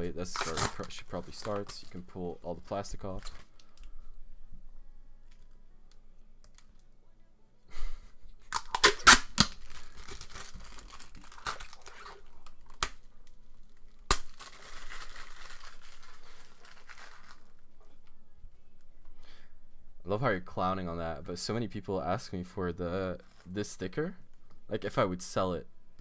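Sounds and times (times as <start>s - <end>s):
plastic film peeling and crackling: 0.0s - 4.0s, 5.2s - 6.8s, 8.4s - 18.2s
sharp cracks: 8.5s - 12.0s, 13.9s - 15.8s.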